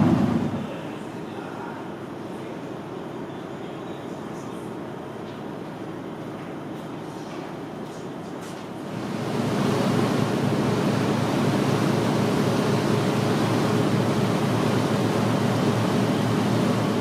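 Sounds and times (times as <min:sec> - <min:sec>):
churning wake water: 0:00.0 - 0:00.7, 0:08.9 - 0:17.0
muffled cabin hum: 0:00.0 - 0:00.8.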